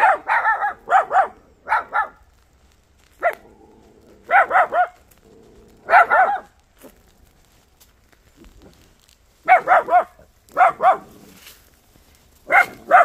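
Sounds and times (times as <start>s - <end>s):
dog barking: 0.0s - 2.2s, 3.2s - 3.4s, 4.3s - 5.0s, 5.8s - 6.6s, 9.4s - 11.2s, 12.4s - 13.0s.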